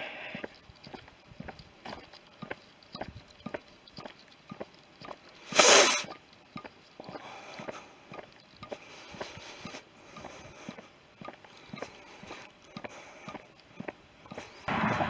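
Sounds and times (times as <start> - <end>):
footsteps walking on a lane: 0.0 - 15.0
short loud hissing rush: 5.5 - 6.1.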